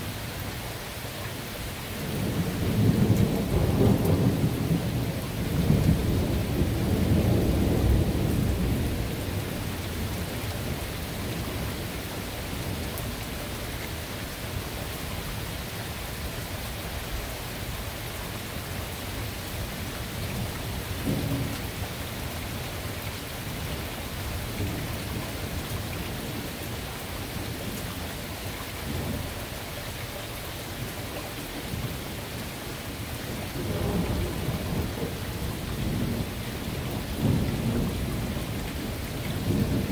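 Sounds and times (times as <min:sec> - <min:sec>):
steady rain falling: 0:00.0 - 0:39.9
thunder rumbling: 0:02.0 - 0:11.9, 0:33.3 - 0:39.9.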